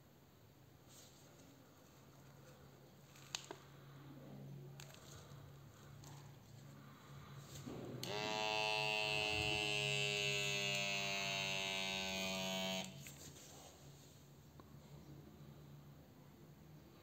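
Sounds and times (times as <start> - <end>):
small air pump motor whine: 7.6 - 13.2.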